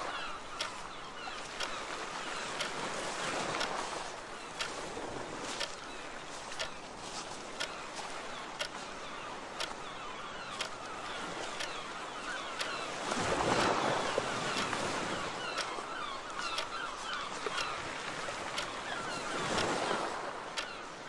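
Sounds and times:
seagulls calling: 0.0s - 3.6s, 7.6s - 21.0s
sea waves: 0.0s - 21.0s
clock ticking: 3.6s - 3.8s, 8.6s - 8.8s, 10.6s - 10.8s, 15.6s - 16.8s, 17.5s - 17.8s, 18.6s - 18.8s, 19.5s - 19.8s.

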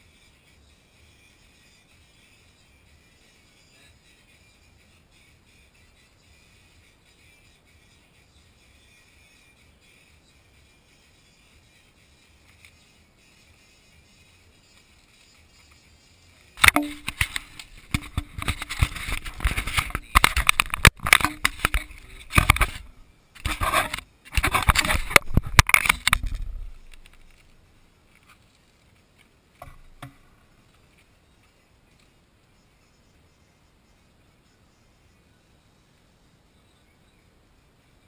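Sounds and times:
camera knocking on wooden board: 16.6s - 22.8s, 29.6s - 30.2s.

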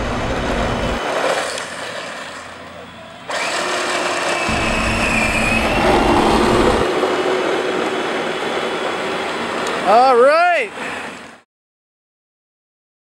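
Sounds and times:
electric motor whine: 3.2s - 9.8s
low rumble: 4.5s - 8.2s.

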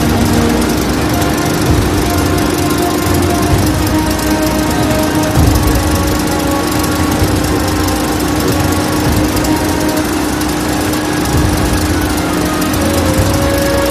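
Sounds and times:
cable granulator humming and hissing: 0.0s - 13.9s.

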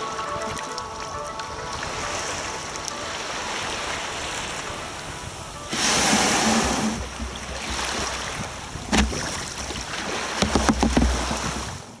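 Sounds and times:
waves hissing on beach: 0.0s - 10.6s
wind on microphone: 0.0s - 12.0s
kayak hull knocking on shingle: 5.7s - 12.0s.

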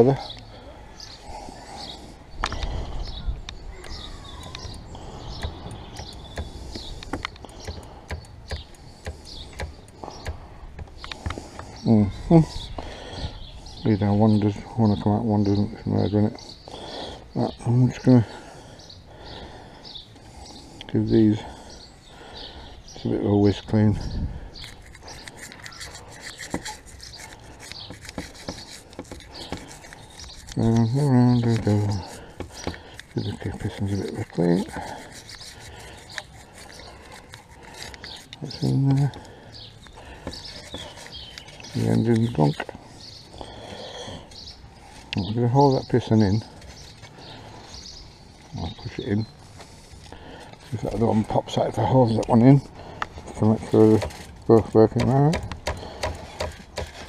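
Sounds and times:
bird chirping: 0.0s - 57.0s
sharp clicks: 3.4s - 11.4s
toothbrush bristles scratching: 24.6s - 42.7s.

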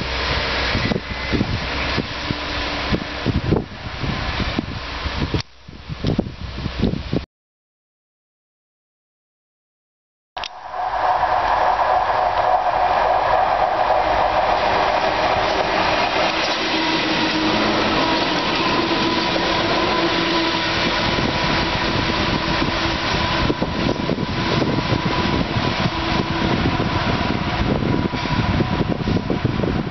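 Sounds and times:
diesel locomotives passing: 0.0s - 5.4s, 10.4s - 29.9s.

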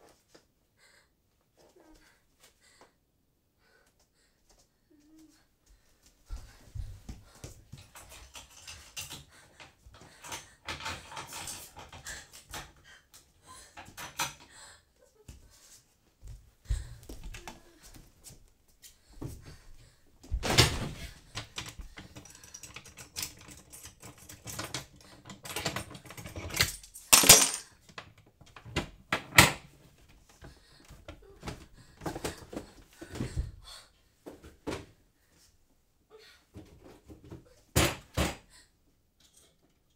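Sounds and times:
drawers and doors opening: 20.4s - 21.8s.

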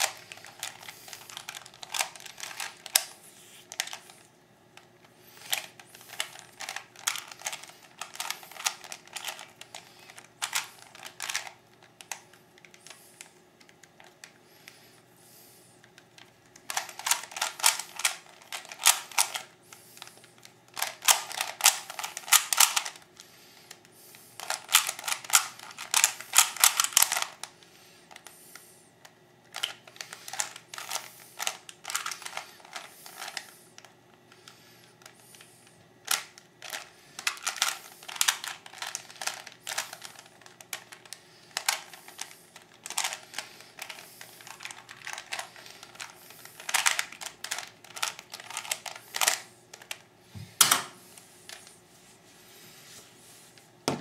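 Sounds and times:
puzzle cube clacking: 0.0s - 4.0s.

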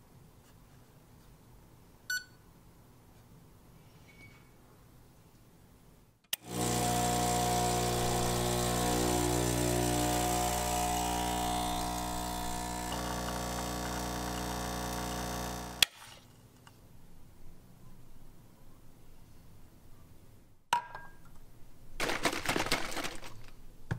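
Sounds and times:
espresso machine pump buzzing: 6.4s - 15.9s.

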